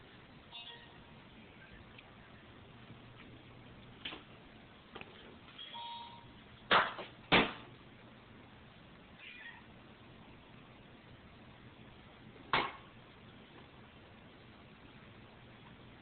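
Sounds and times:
cat meowing: 9.2 - 9.7.

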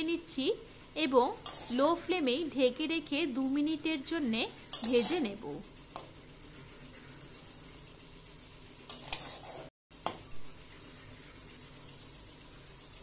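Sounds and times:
greens sizzling in oil: 0.0 - 13.0
spatula scraping pan: 1.3 - 2.2, 4.5 - 6.1, 8.8 - 10.2.

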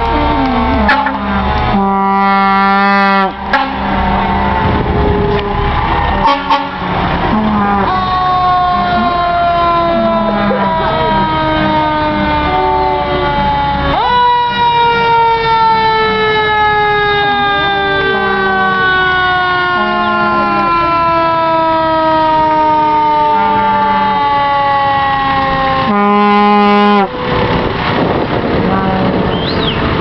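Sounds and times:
fire engine siren: 0.0 - 30.0
short low horn blasts: 0.4 - 4.7, 6.2 - 13.7, 25.8 - 27.2.

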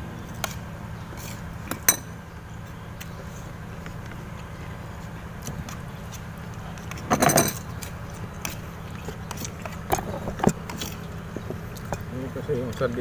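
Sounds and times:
dishes clinking: 7.1 - 7.6.

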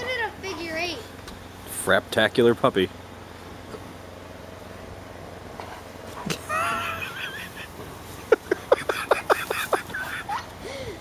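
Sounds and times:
person laughing: 6.3 - 11.0.

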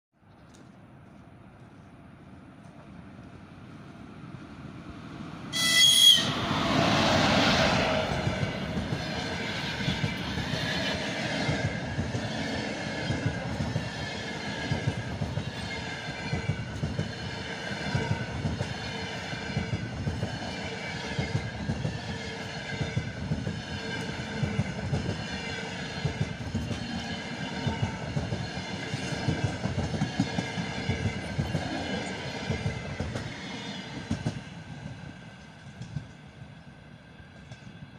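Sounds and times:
train rolling past: 0.4 - 37.9.

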